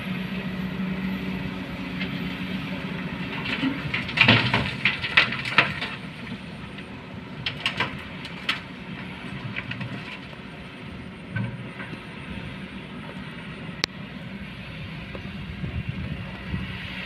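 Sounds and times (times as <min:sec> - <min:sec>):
excavator diesel engine running: 0:00.0 - 0:17.0
rocks crashing into truck bed: 0:03.3 - 0:06.3.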